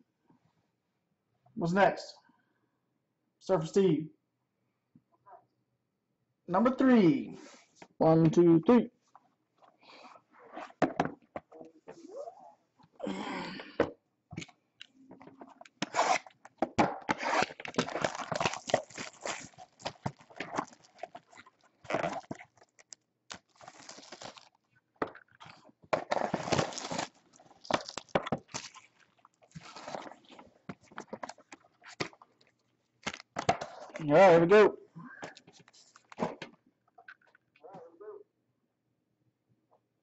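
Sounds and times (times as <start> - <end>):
foil pack handled: 17.2 - 24.6, 26.0 - 32.2
wrapping tearing and crinkling: 17.2 - 24.7, 25.4 - 33.9.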